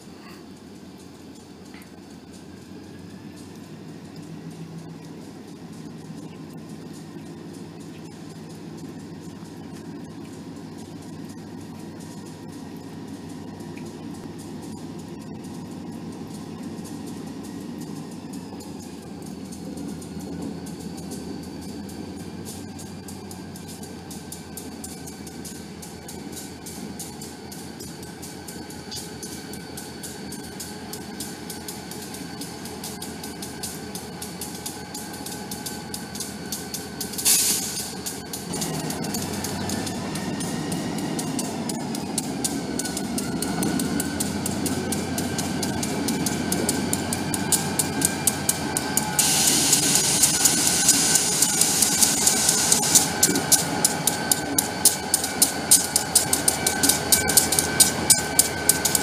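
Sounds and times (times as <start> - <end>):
diesel locomotive engines rumbling: 0.0 - 59.0
wheels clicking over rail joints: 0.0 - 59.0
hiss: 36.6 - 40.0, 48.8 - 58.2.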